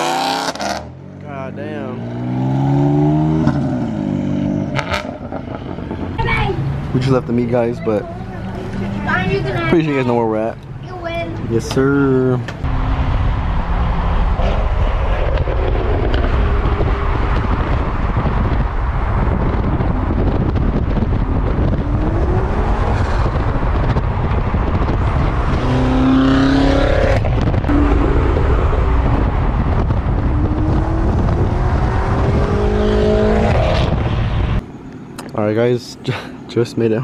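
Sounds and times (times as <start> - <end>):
car engines revving past: 0.0 - 7.3, 8.0 - 9.7, 12.4 - 35.2.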